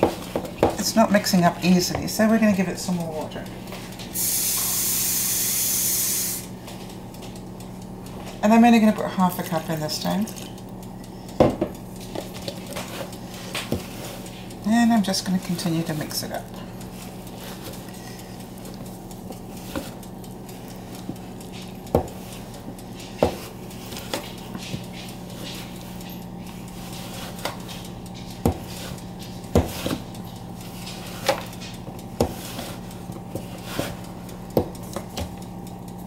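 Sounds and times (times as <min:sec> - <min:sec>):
wooden spoon stirring dough: 0:00.0 - 0:04.0, 0:11.4 - 0:36.0.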